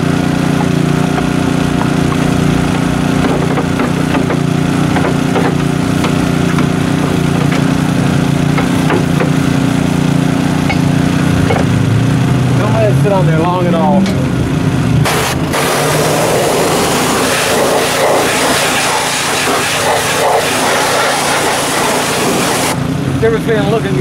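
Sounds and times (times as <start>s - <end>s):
small engine droning: 0.0s - 24.0s
brush scrubbing plastic: 15.1s - 22.8s.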